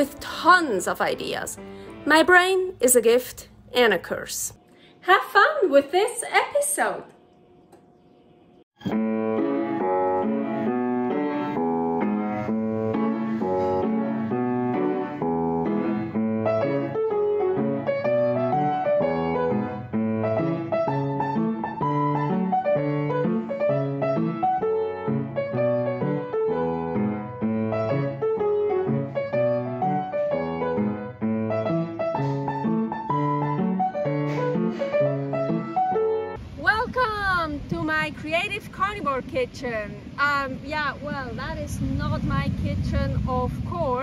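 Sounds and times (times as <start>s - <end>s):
piano background music: 0.0s - 3.1s, 8.8s - 36.4s.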